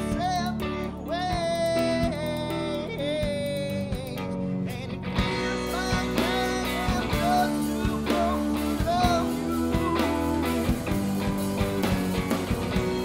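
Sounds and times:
man singing into microphone: 0.0 - 10.9
bass guitar: 0.0 - 13.0
electric guitar: 0.0 - 13.0
steady drum beat: 0.0 - 13.0.

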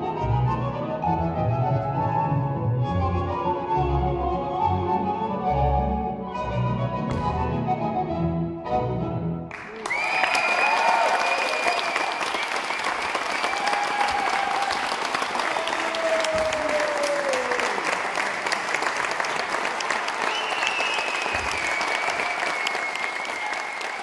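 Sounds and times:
audience applauding: 9.5 - 24.0
audience cheering: 9.5 - 24.0
high whistles: 9.8 - 13.8, 20.2 - 24.0.

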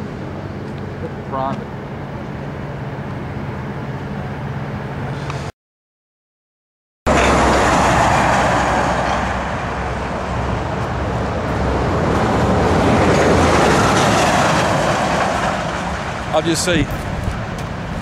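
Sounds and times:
vehicle engine rumble: 7.1 - 18.0.

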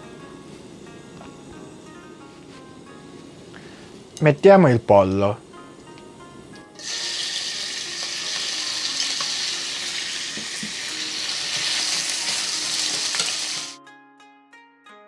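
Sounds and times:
chicken sizzling in frying pan: 6.8 - 13.8
chopsticks turning food in pan: 6.8 - 13.8.

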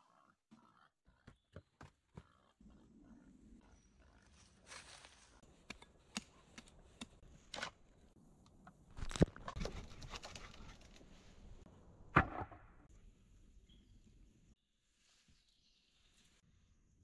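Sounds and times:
loud thump: 12.1 - 12.7.

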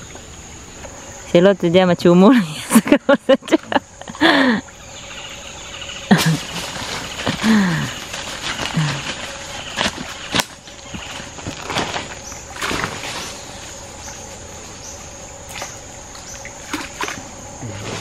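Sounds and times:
water splashing and sloshing: 0.0 - 18.0
high-pitched insect drone: 3.7 - 18.0
sharp splashes and knocks: 9.8 - 13.3, 15.4 - 17.4.

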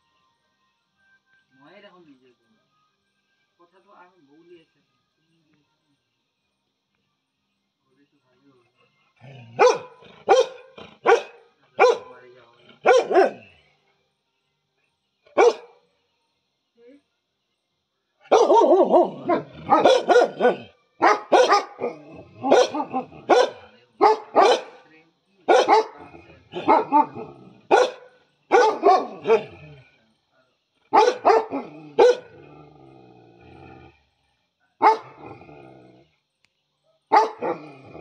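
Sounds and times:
dog barking loudly: 9.6 - 12.2, 12.8 - 13.4, 15.4 - 15.7, 18.3 - 24.8, 25.5 - 29.6, 30.9 - 32.4, 34.8 - 35.2, 37.1 - 37.7.

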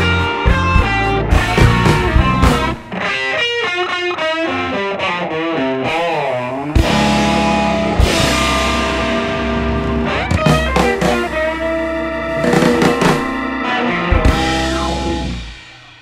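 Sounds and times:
rock music with guitar and drums: 0.0 - 16.0
sharp drum hits: 6.8 - 11.8, 12.4 - 13.5.

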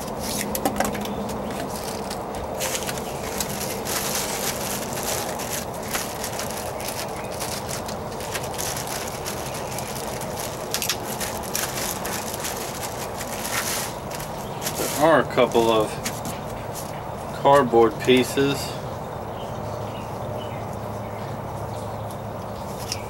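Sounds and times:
plastic bag crinkling: 0.0 - 16.3
steady background noise: 0.0 - 23.0.

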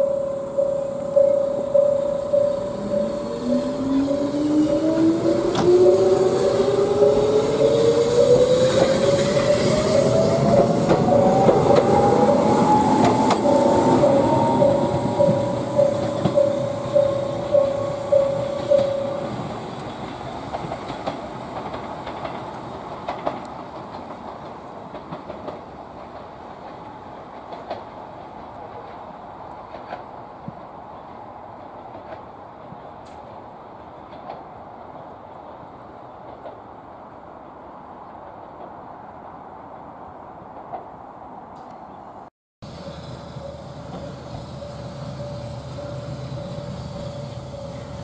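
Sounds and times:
train wheel and rail clatter: 0.0 - 39.8, 40.4 - 41.0, 42.6 - 48.0
train motors whining: 0.5 - 20.3
clacks over rail joints: 10.1 - 30.8, 31.6 - 33.4, 34.0 - 35.1, 36.2 - 36.6.

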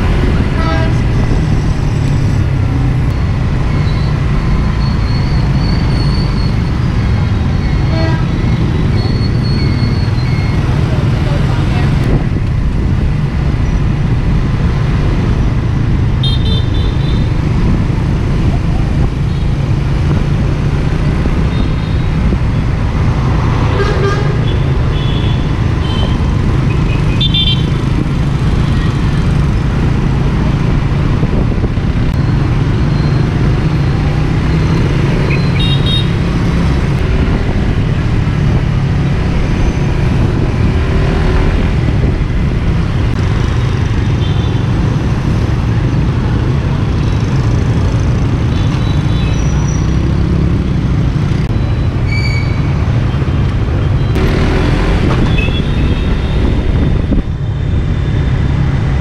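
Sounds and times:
road noise rumble: 0.0 - 59.0
vehicle horn beeps: 55.2 - 56.4.

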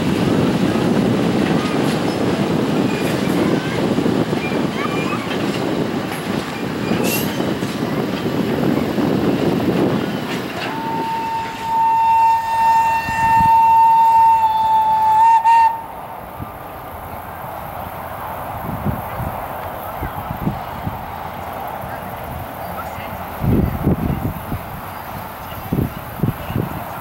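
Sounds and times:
train rumbling past: 0.0 - 27.0
train whistle blast: 10.6 - 15.9.

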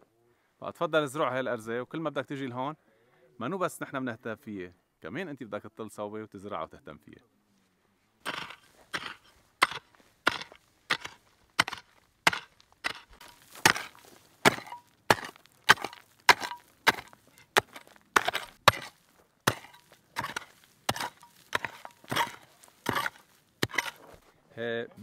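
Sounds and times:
mattock striking stony soil: 8.2 - 24.3.

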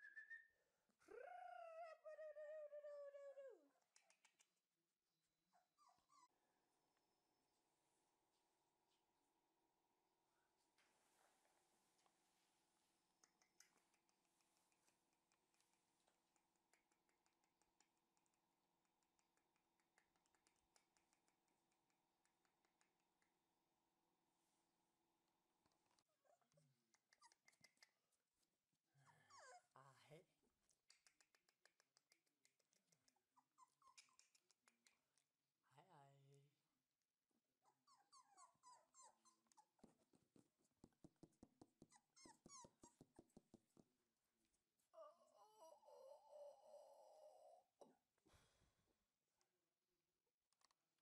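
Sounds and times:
puppy yipping: 5.6 - 6.4, 33.3 - 34.4, 37.7 - 39.9, 41.8 - 43.1, 45.0 - 47.6
puppy whimpering: 29.1 - 29.8, 33.4 - 34.4, 37.7 - 39.9, 41.8 - 43.1, 45.0 - 47.8.

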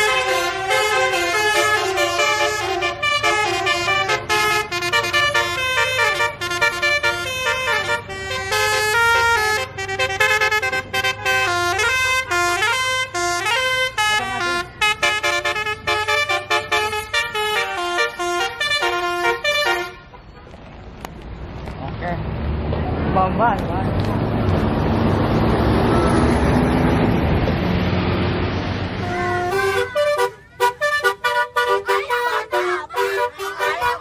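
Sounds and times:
multi-tone bus horn playing a tune: 0.0 - 20.4, 29.0 - 34.0
low engine hum: 20.4 - 31.2.

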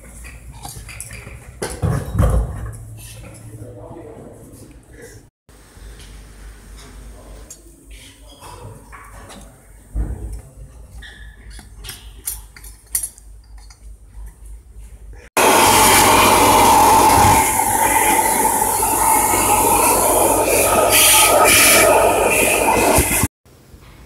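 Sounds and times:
compressed air rushing: 15.4 - 23.3.

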